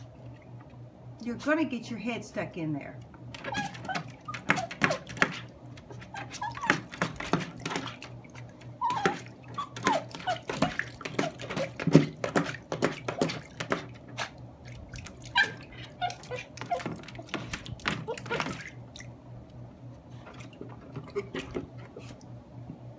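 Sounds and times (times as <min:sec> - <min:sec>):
dog splashing in water: 0:03.3 - 0:19.2.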